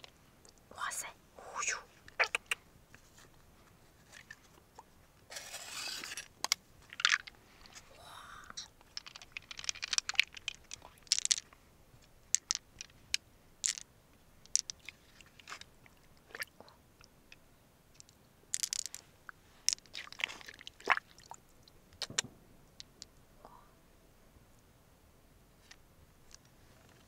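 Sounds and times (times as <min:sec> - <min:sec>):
mussel shell crunching and clicking: 0:08.8 - 0:11.5.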